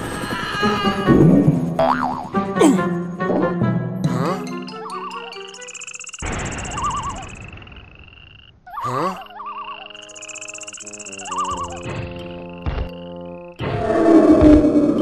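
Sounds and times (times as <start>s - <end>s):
frogs croaking: 4.7s - 14.1s
insect chirring: 4.9s - 13.6s.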